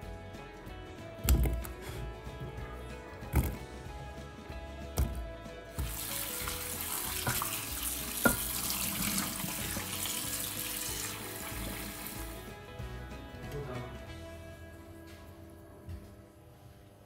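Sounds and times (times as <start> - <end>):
tap water splashing in sink: 5.8 - 12.4.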